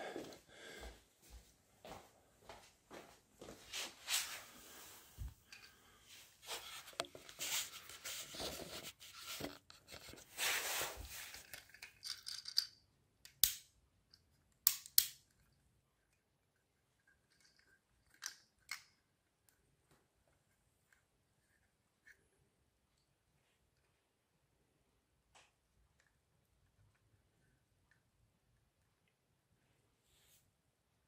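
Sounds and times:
sharp clicks of toy handling: 14.6s - 15.4s.

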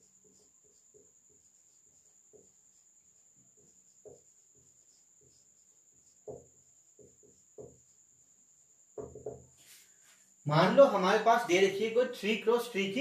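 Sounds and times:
marker scratching on whiteboard: 0.0s - 8.2s.

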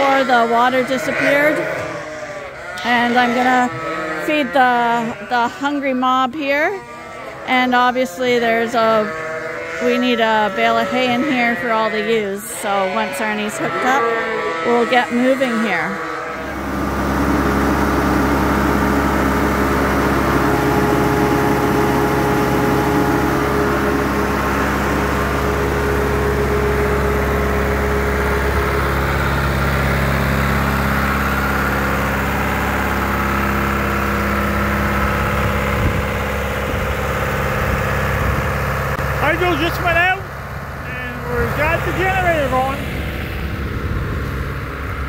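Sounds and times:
tractor engine droning: 15.7s - 45.0s.

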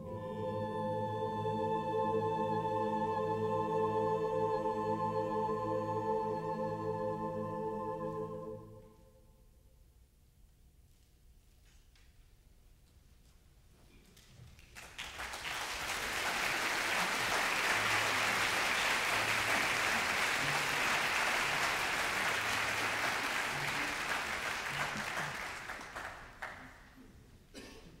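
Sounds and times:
audience applauding: 14.2s - 26.9s.

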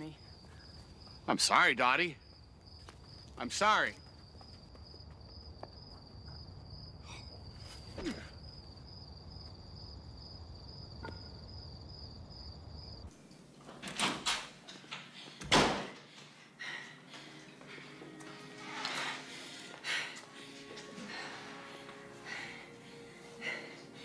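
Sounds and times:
crickets chirping: 0.0s - 13.2s
door banging shut: 13.8s - 14.5s, 15.4s - 16.0s.

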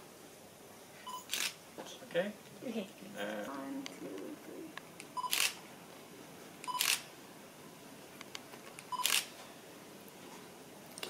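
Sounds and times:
camera focus beep: 1.1s - 1.6s, 5.2s - 5.6s, 6.6s - 7.0s, 8.9s - 9.3s
camera shutter firing: 1.3s - 1.6s, 5.2s - 5.6s, 6.6s - 7.1s, 8.8s - 9.3s.

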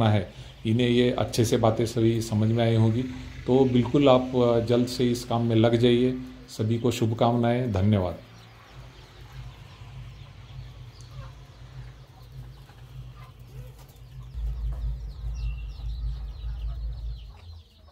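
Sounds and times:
chickens clucking: 0.0s - 17.9s
low microphone rumble: 14.0s - 17.9s.

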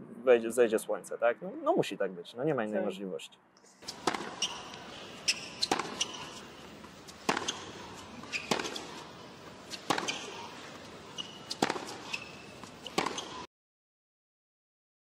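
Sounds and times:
steady hiss: 3.7s - 13.4s.

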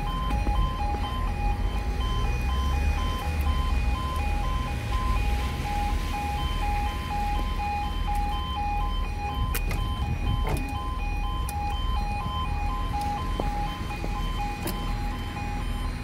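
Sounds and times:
two-note electronic warning beep: 0.0s - 16.0s.

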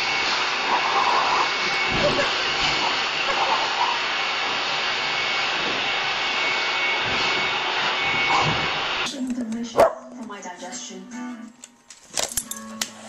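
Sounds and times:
dryer blowing air: 0.0s - 9.2s.

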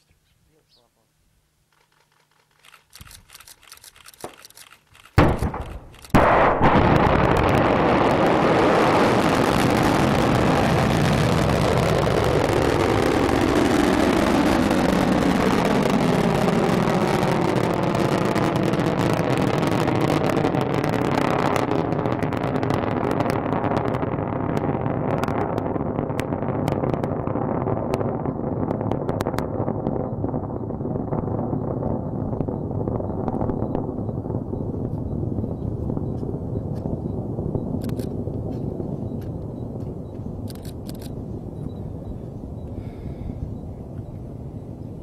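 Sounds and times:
faint crackles: 1.7s - 6.4s, 7.0s - 37.1s, 37.7s - 41.8s
sharp bang: 5.2s - 7.4s
rocket engines roaring: 5.2s - 45.0s.

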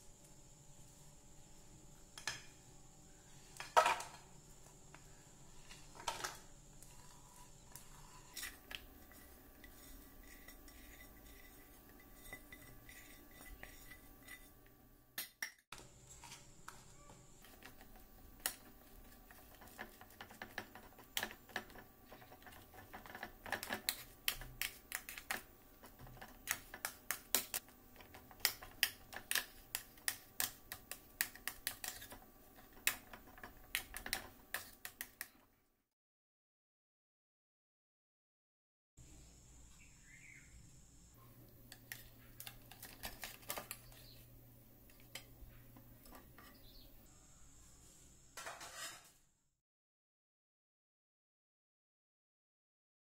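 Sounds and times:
spoon scraping baking tray: 3.3s - 35.4s, 41.5s - 46.9s, 48.4s - 49.2s.

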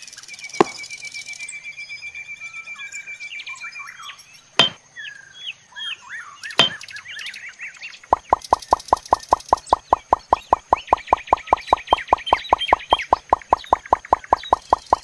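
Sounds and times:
birds chirping: 0.1s - 2.1s, 2.7s - 15.0s
fast even plops: 0.6s - 0.9s, 8.1s - 15.0s
sharp taps: 0.6s - 0.9s, 4.6s - 4.8s, 6.6s - 6.8s, 8.1s - 15.0s.

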